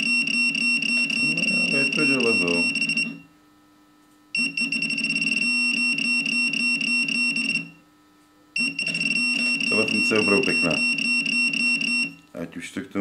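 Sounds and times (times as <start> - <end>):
high electronic beep: 0.0 - 3.2, 8.6 - 12.2.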